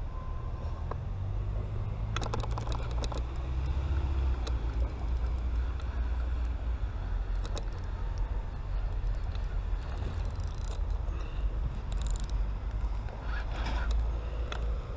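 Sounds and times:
fishing reel clicks: 4.4s - 6.6s, 7.3s - 11.0s, 11.8s - 12.4s.

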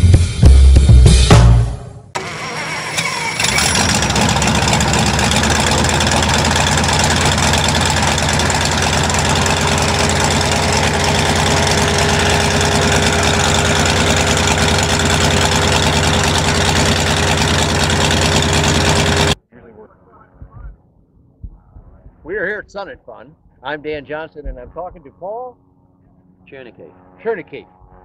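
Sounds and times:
radial aircraft engine idling: 2.2s - 19.4s.

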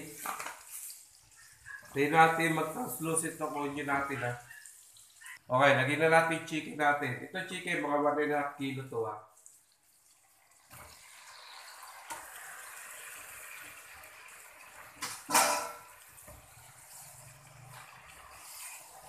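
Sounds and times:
chicken sizzling in a pan: 0.0s - 5.4s, 9.9s - 19.0s
loud metallic clank: 15.3s - 15.8s.

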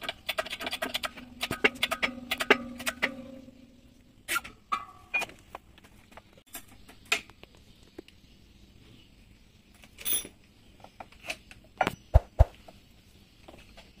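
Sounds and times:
metal scraping: 0.0s - 5.3s
metal parts clinking on steel bench: 9.9s - 10.4s.

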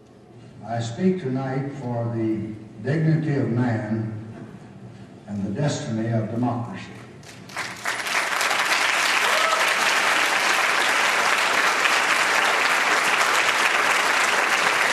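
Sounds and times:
audience applauding: 7.3s - 14.9s.

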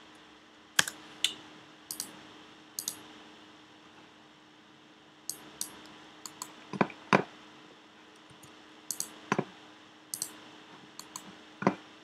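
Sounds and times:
faint hum: 0.0s - 12.0s
mouse and keyboard clicks: 0.8s - 2.1s, 2.8s - 3.0s, 5.3s - 6.9s, 8.2s - 9.5s, 10.2s - 10.4s, 11.0s - 11.8s.

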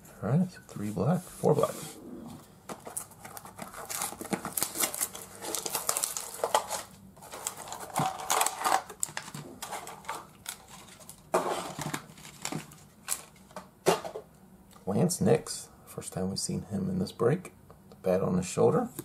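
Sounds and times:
plastic packaging crinkling: 2.7s - 13.6s.

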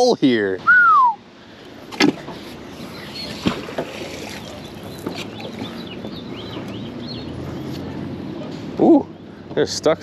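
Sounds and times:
steady background noise: 0.0s - 10.0s
bird chirping: 2.7s - 3.6s, 4.2s - 9.5s.

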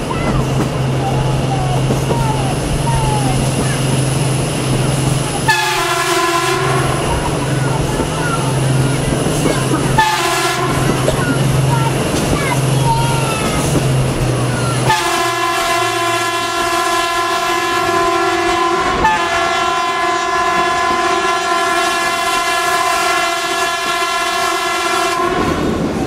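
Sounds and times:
locomotive horn blast: 5.4s - 7.8s, 9.6s - 11.6s, 14.8s - 25.8s.

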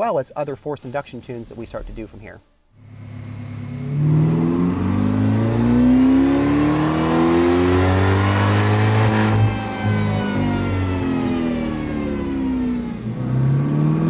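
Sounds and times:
car engine accelerating: 2.8s - 14.0s.

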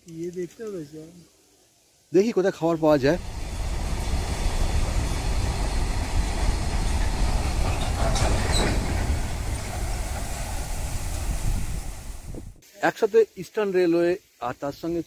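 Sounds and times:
freight train wheels rumbling: 2.9s - 12.6s
faint squeal: 7.6s - 9.2s.

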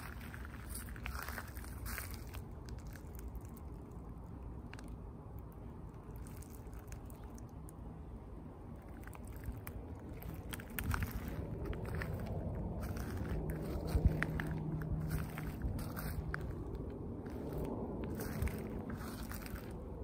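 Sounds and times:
footsteps crunching on mulch: 0.0s - 3.2s, 9.0s - 20.0s
clicks and crackles: 0.0s - 7.8s, 8.7s - 19.8s
steady low rumble: 0.0s - 20.0s.

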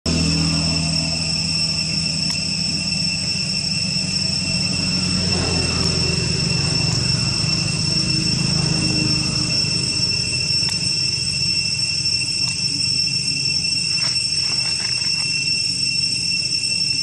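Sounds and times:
low rumble: 0.1s - 15.8s
high-pitched insect drone: 0.1s - 17.0s.

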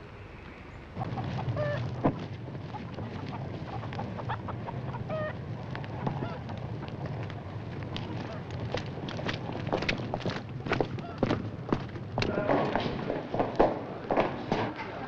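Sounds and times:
low steady rumble: 0.0s - 12.4s
chickens clucking: 0.9s - 7.4s.

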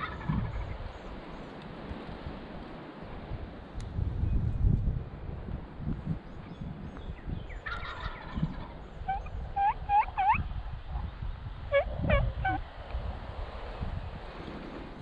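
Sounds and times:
turkey gobbling: 0.0s - 0.8s, 7.6s - 11.0s, 11.7s - 12.7s
short rising yelps: 11.7s - 12.6s.

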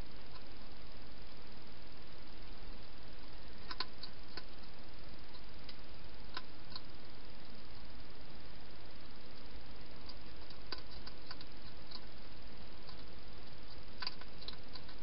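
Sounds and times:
steady hiss: 0.0s - 15.0s
hedgehog chewing: 10.0s - 12.2s, 12.8s - 15.0s.

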